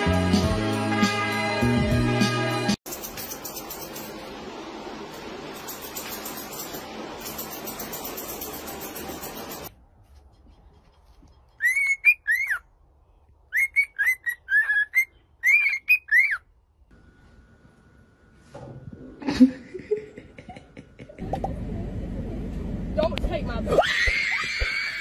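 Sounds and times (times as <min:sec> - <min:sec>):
cockatiel whistling a tune: 0:11.6 - 0:12.6, 0:13.5 - 0:16.4.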